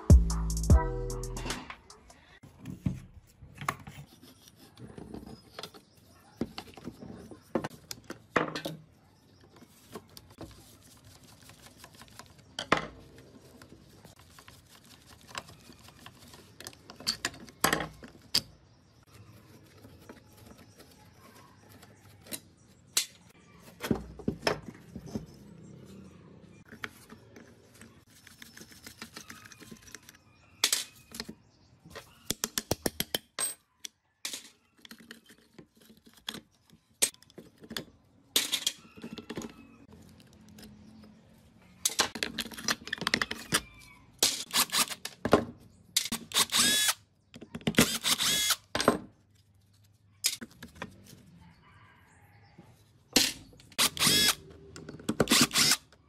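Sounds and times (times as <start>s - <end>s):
cordless drill whining: 46.2s - 47.0s, 47.8s - 48.6s, 53.8s - 54.4s, 55.3s - 55.8s.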